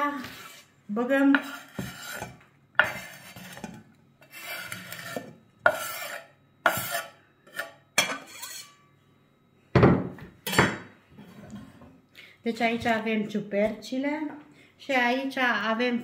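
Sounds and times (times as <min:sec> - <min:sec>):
knife scraping cutting board: 0:00.0 - 0:08.8.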